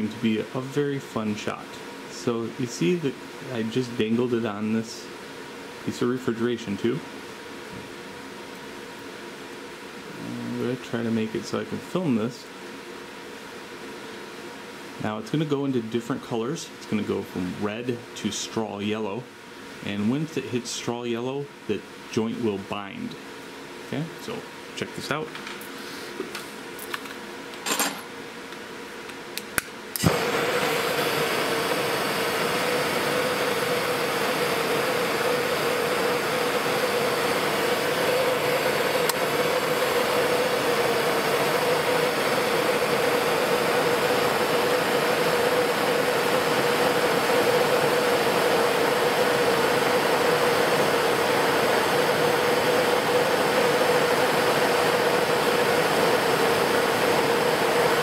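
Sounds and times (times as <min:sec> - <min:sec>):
torch igniter clicks: 0:28.5 - 0:30.4, 0:39.0 - 0:39.3
torch flame hissing: 0:29.9 - 0:58.0.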